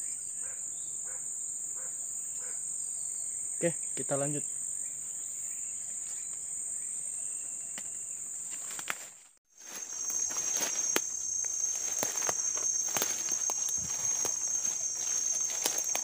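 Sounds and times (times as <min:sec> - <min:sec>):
insects droning: 0:00.0 - 0:16.0
rustling undergrowth: 0:07.8 - 0:16.0
footsteps through leaf litter: 0:08.5 - 0:16.0.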